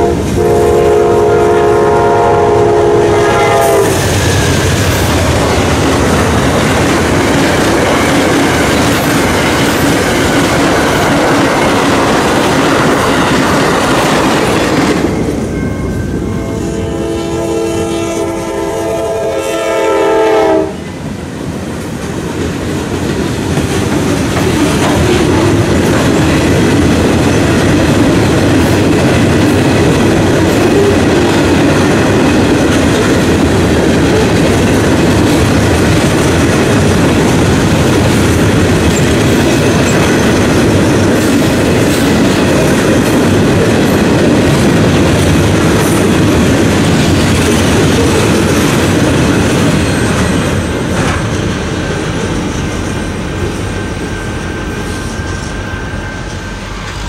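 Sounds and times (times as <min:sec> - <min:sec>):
locomotive horn chord: 0:00.0 - 0:04.0, 0:16.2 - 0:20.8
train wheels clattering on rails: 0:03.8 - 0:16.4, 0:20.8 - 0:57.0.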